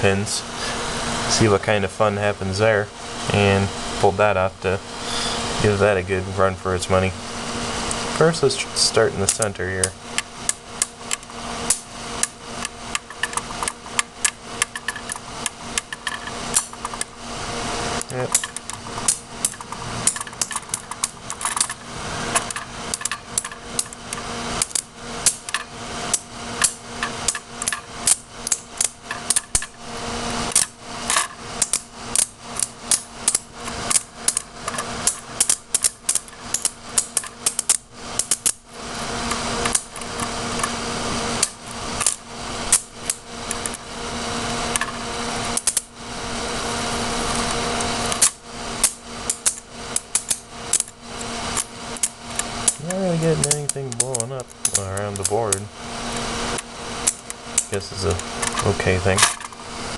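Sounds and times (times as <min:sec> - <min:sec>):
electric arcs crackling and snapping: 0:07.8 - 0:59.9.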